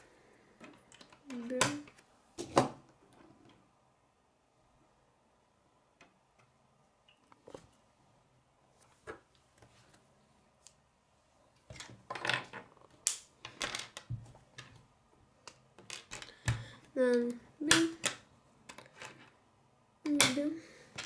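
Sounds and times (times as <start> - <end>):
plastic pieces clicking and clattering: 11.7 - 14.8, 15.4 - 19.4.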